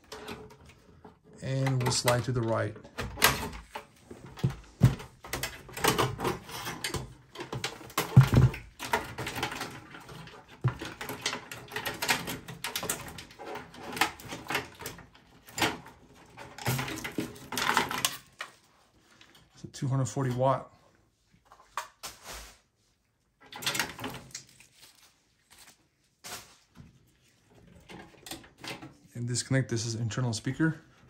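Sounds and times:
metal and plastic clicks and scrapes: 0.0s - 19.6s.

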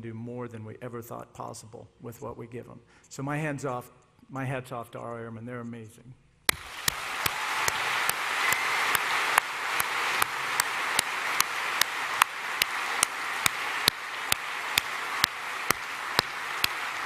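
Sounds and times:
audience applauding: 6.5s - 17.0s
sharp close hand claps: 6.5s - 17.0s.

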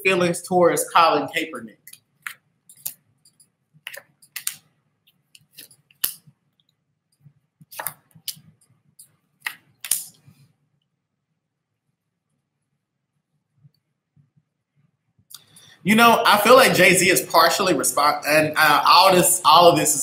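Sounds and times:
cards being shuffled: 3.8s - 6.4s, 7.6s - 8.6s.

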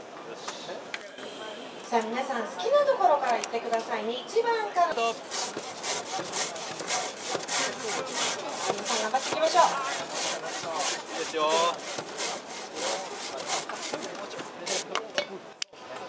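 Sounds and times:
saw rasping through log: 5.0s - 14.9s.

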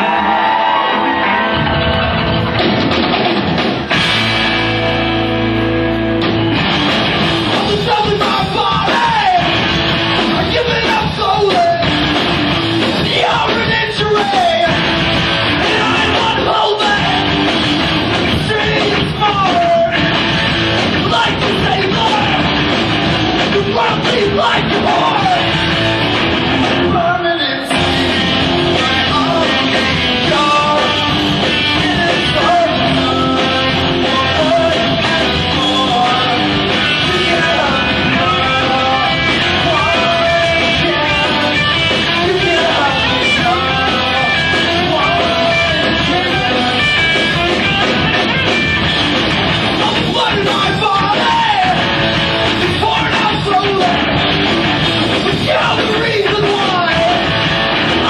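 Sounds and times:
rock band playing: 0.0s - 58.0s
person singing: 7.4s - 9.6s, 10.2s - 12.0s, 13.0s - 14.9s, 15.6s - 17.4s, 18.2s - 20.4s, 21.0s - 22.6s, 23.4s - 25.6s, 26.8s - 48.3s, 49.7s - 54.1s, 55.1s - 58.0s.

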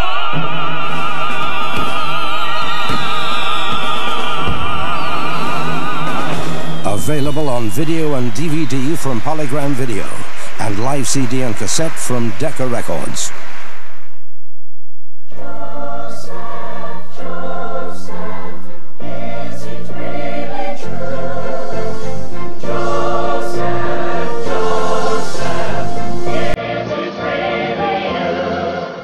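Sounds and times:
choir singing sustained chords: 0.0s - 9.2s, 15.3s - 29.0s
quieter music: 0.0s - 13.3s, 15.8s - 29.0s.

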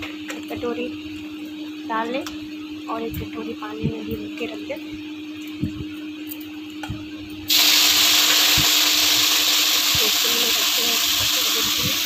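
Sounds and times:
vegetables sizzling in hot oil: 7.5s - 12.0s.

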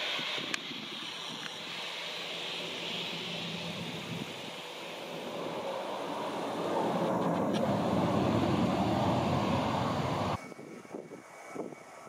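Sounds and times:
jet engines rushing: 0.0s - 10.5s.

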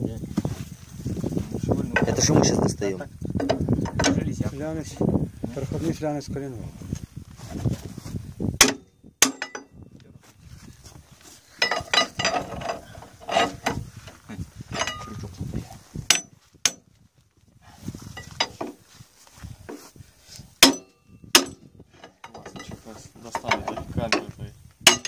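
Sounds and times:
hand tools clinking on metal: 3.4s - 4.3s, 8.6s - 9.8s, 11.5s - 13.8s, 14.7s - 15.3s, 16.1s - 16.8s, 20.6s - 25.0s.

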